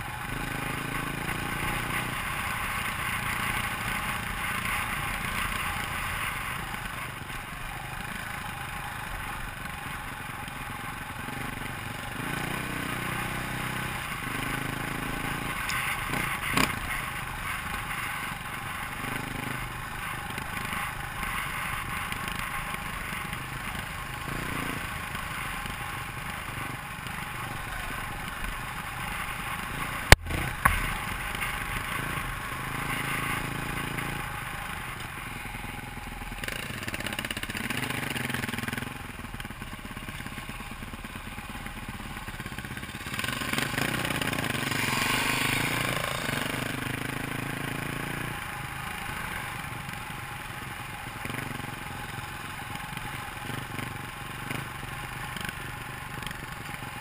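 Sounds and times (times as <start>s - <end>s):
dirt bike engine running: 0.0s - 57.0s.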